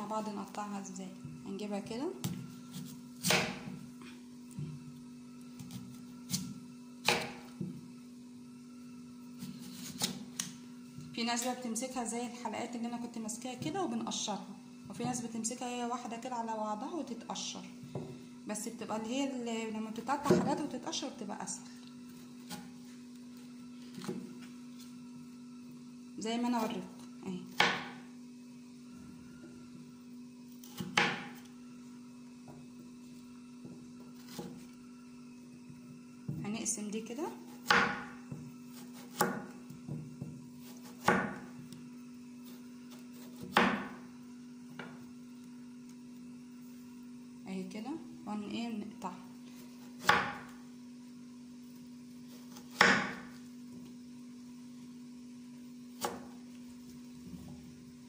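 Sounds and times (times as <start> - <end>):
steady hum: 0.0 - 58.0
knife chopping on cutting board: 2.2 - 3.8, 5.6 - 7.8, 9.4 - 10.5, 27.5 - 28.0, 30.6 - 31.4, 33.6 - 34.6, 37.5 - 41.5, 42.4 - 44.0, 49.8 - 50.6, 52.3 - 53.4, 56.0 - 56.4.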